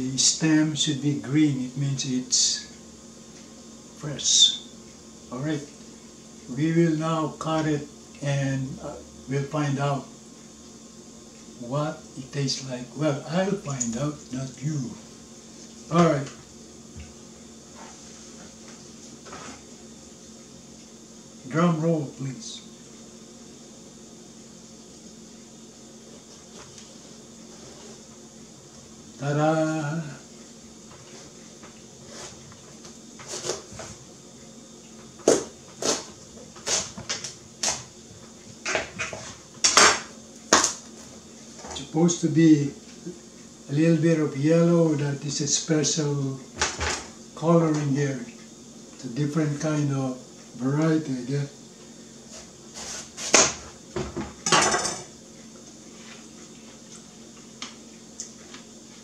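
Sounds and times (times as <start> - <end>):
knife crunching through watermelon: 33.2 - 34.0.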